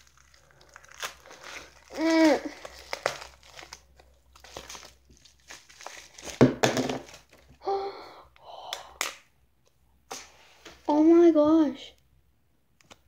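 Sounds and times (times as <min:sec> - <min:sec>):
plastic bag crinkling: 0:00.0 - 0:07.6
plastic tub thumping on wooden table: 0:06.4 - 0:07.1.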